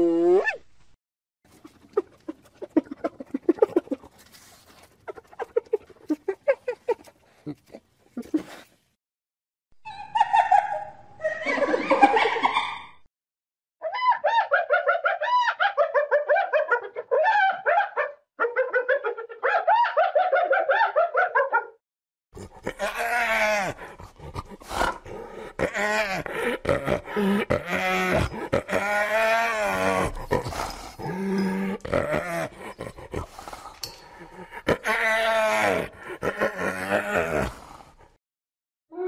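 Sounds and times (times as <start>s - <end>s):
hyena giggling: 1.9s - 4.2s, 4.8s - 8.7s, 22.4s - 37.5s.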